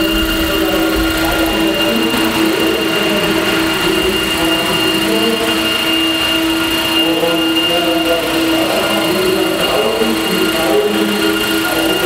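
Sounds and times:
model helicopter rotor whine: 0.0s - 12.0s.

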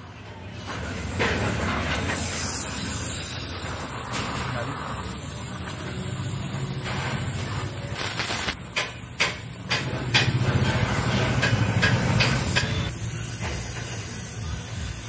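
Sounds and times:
welding torch hissing flame: 0.5s - 15.0s
sharp crackles of sparks: 2.1s - 12.4s.

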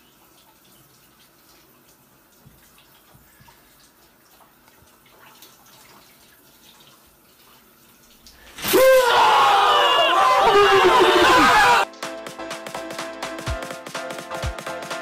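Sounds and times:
loud yelling: 8.6s - 11.9s.

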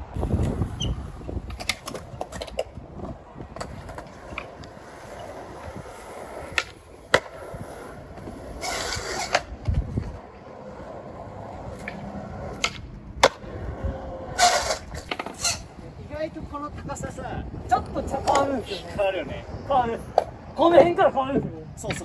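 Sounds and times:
skateboard wheels rolling on concrete: 0.0s - 22.0s
skateboard landing clack: 6.5s - 7.4s, 12.6s - 13.5s
skateboard tail popping clack: 6.5s - 7.4s, 12.6s - 13.5s.

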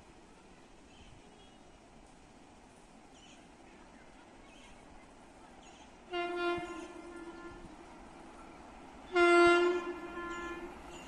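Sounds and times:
electric locomotive horn: 6.1s - 7.8s, 9.1s - 11.0s.

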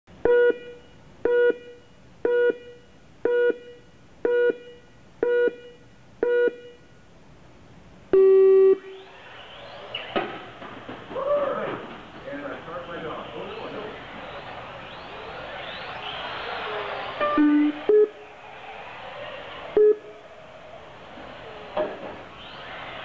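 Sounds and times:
short timer beeps: 0.3s - 6.9s, 17.2s - 18.2s
rc cars whining: 12.7s - 23.0s.

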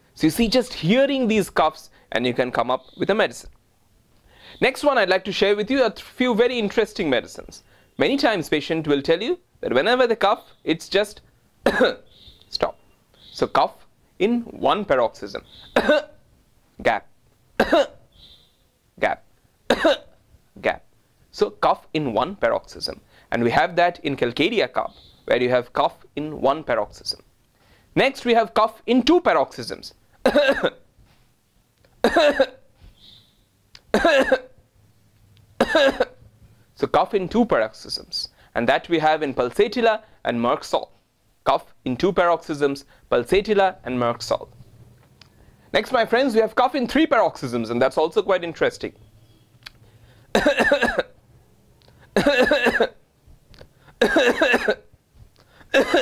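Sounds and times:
man coughing: 11.6s - 12.1s, 15.7s - 16.2s, 17.6s - 18.0s, 19.7s - 20.2s, 30.2s - 30.8s, 32.0s - 32.7s, 33.9s - 34.6s, 35.6s - 36.2s, 50.3s - 51.2s, 52.1s - 53.0s, 54.0s - 54.9s, 55.7s - 56.0s.

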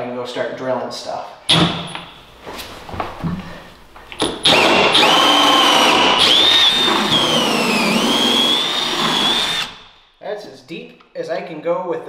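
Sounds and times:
cordless drill boring wood: 4.2s - 10.0s.

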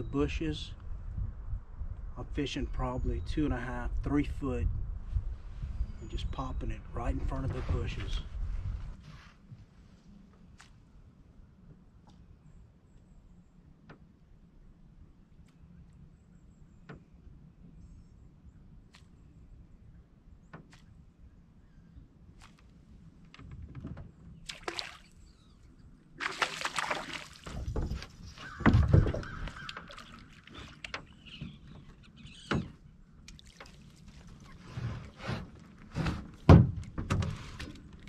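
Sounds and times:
fish splashing at the surface: 24.5s - 25.2s, 26.2s - 27.7s.

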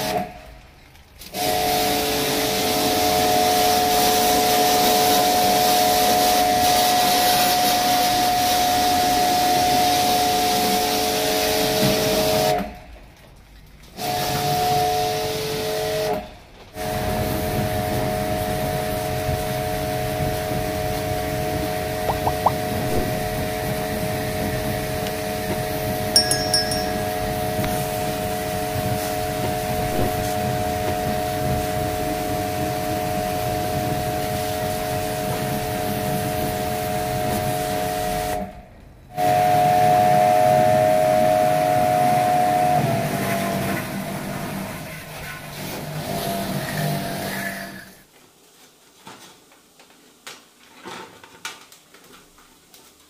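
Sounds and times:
water jet hissing: 22.1s - 38.4s.

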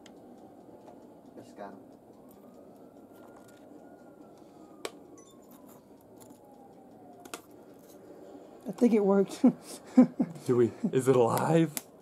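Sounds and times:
sharp clicks: 0.0s - 8.1s, 11.1s - 12.0s.

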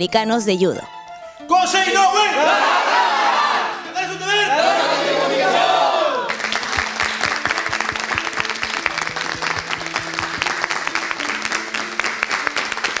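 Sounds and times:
background music simple melody: 0.0s - 13.0s
group of people clapping: 5.4s - 13.0s.

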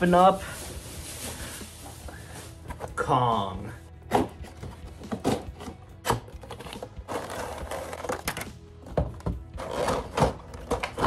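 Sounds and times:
plastic packaging rustling: 0.0s - 3.2s, 6.4s - 8.5s.

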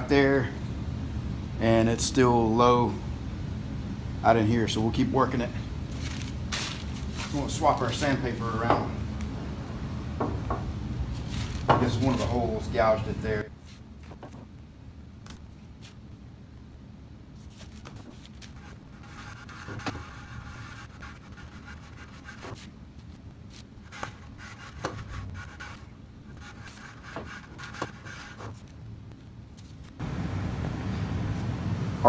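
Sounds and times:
low shop hum: 0.0s - 32.0s
sandpaper rubbing on steel table: 17.6s - 22.7s, 23.9s - 28.6s.

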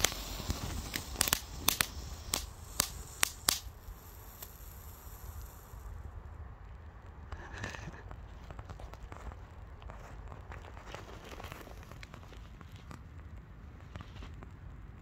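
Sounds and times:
firework fountain hissing sparks: 0.0s - 6.3s
sharp crackling pops: 0.0s - 10.6s.

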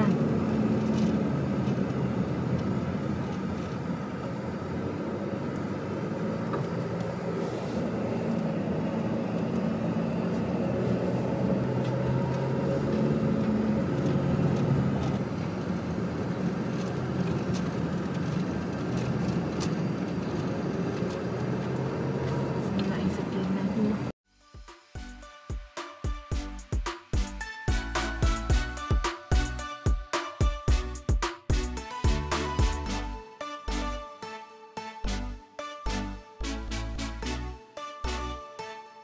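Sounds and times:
car engine hum: 0.0s - 15.2s.

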